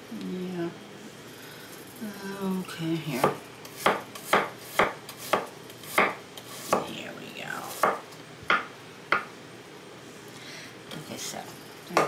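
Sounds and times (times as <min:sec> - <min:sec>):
knife chopping on wooden board: 0:03.2 - 0:06.9, 0:07.7 - 0:09.3.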